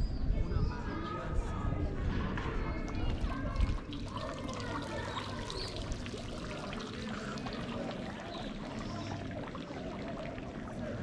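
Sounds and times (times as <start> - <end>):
fountain splashing into pool: 3.0 - 11.0.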